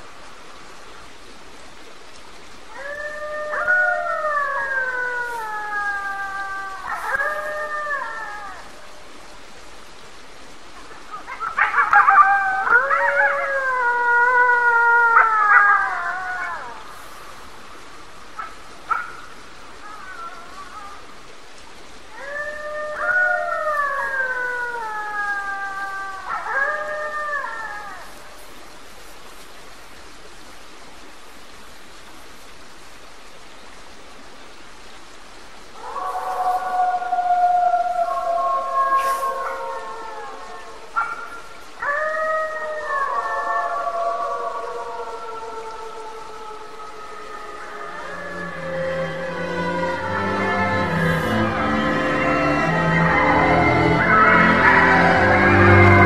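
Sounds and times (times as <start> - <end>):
background hiss: 0.0 - 56.0
wild canids howling: 2.6 - 29.4, 35.6 - 56.0
warbling yips: 47.8 - 56.0.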